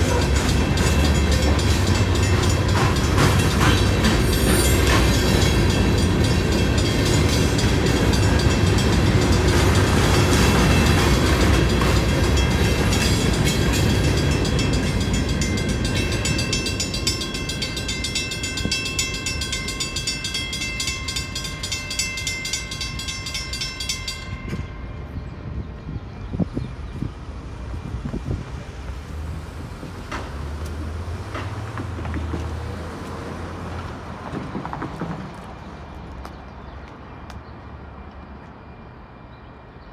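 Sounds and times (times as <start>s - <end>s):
crossing warning bell ringing: 0.0s - 25.6s
train wheels rumbling and clattering: 0.0s - 25.8s, 26.4s - 36.5s.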